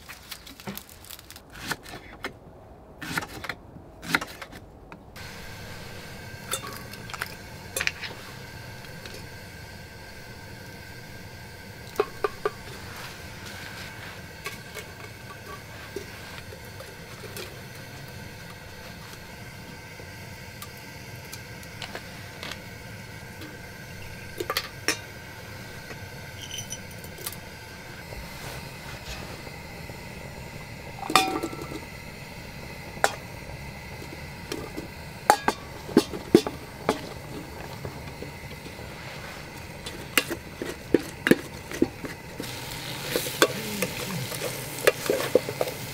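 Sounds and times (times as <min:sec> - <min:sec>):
steady background noise: 0:00.0 - 0:45.9
metal clinks against pot: 0:06.5 - 0:07.0, 0:26.4 - 0:27.2, 0:31.0 - 0:31.8.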